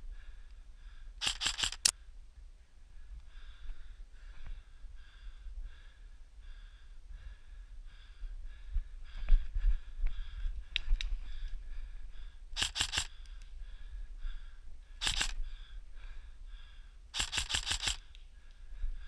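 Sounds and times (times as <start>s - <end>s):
airsoft rifle bursts: 1.2s - 1.9s, 12.6s - 13.2s, 15.0s - 15.4s, 17.1s - 18.2s.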